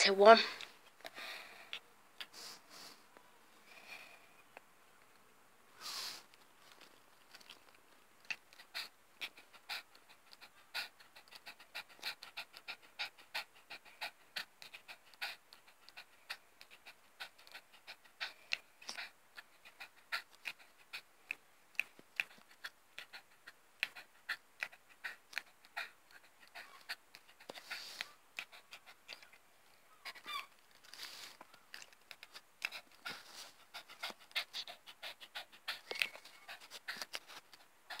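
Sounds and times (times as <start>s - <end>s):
dog panting rapidly: 8.3s - 29.4s, 30.0s - 38.0s.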